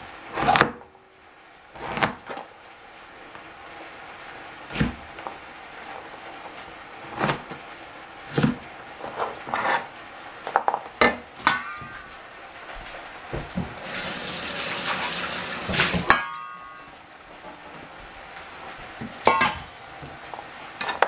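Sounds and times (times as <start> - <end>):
cleaver chopping bread on board: 1.8 - 2.2
tap running water: 12.7 - 20.5.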